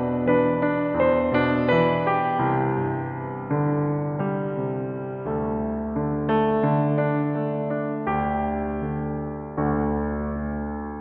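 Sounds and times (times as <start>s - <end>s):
soft piano chords: 0.0s - 11.0s.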